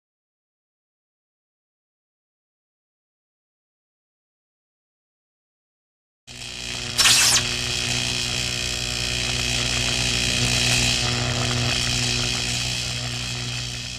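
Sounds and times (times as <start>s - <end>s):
electrical buzz: 6.4s - 13.9s
low hum: 6.7s - 8.4s
electric zap: 7.0s - 7.7s.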